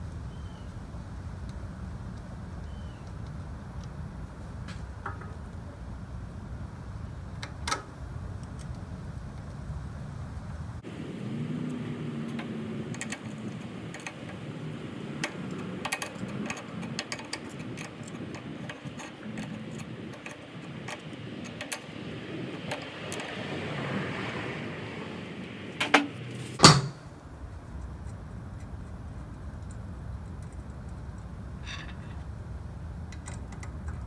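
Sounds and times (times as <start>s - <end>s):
metallic clicks of hand tools: 12.3s - 23.3s.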